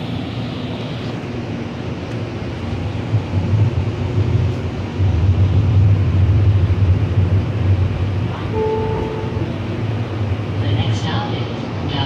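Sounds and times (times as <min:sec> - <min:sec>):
light rail car rumbling: 0:00.0 - 0:12.0
steady tone: 0:05.6 - 0:10.9.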